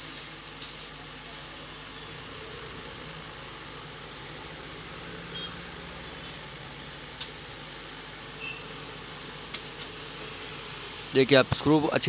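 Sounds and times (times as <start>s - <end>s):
room hum: 0.0s - 12.0s.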